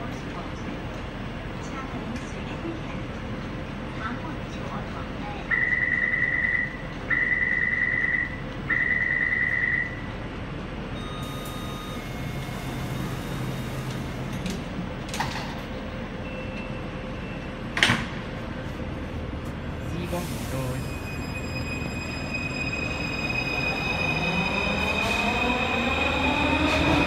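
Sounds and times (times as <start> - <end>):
high-pitched warning beeps: 11.0 - 13.5.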